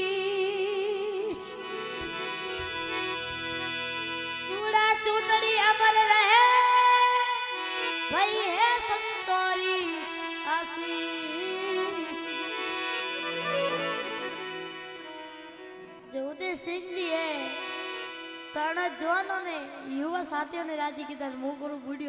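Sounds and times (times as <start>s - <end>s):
boy singing: 0.0s - 2.4s, 4.5s - 13.4s, 16.1s - 17.8s, 18.5s - 22.0s
held drone accompaniment: 1.4s - 6.8s.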